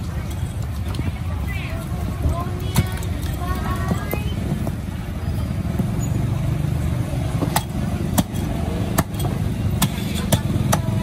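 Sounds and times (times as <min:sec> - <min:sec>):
low engine rumble: 0:00.0 - 0:11.0
cleaver chopping on wooden block: 0:07.4 - 0:11.0.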